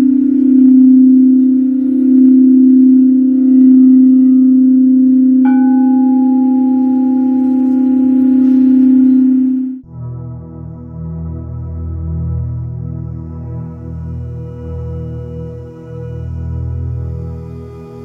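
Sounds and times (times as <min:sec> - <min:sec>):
singing bowl humming: 0:00.0 - 0:09.8
singing bowl strike ringing: 0:00.0 - 0:09.8.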